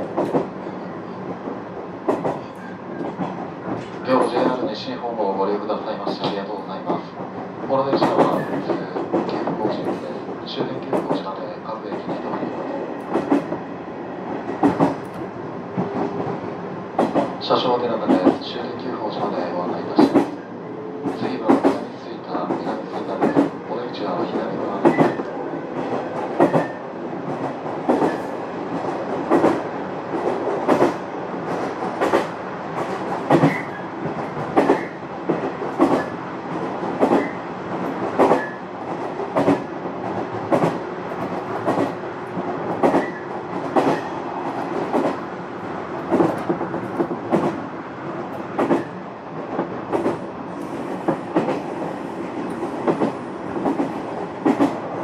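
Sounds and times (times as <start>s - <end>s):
train wheels clacking over rail joints: 0.0s - 0.5s, 2.1s - 4.7s, 7.9s - 11.3s, 14.4s - 15.2s, 17.0s - 17.4s, 18.0s - 18.4s, 20.0s - 20.4s, 21.0s - 23.6s, 24.2s - 45.2s, 46.1s - 47.6s, 48.6s - 48.9s, 49.6s - 54.8s
train running rumble: 0.0s - 55.0s.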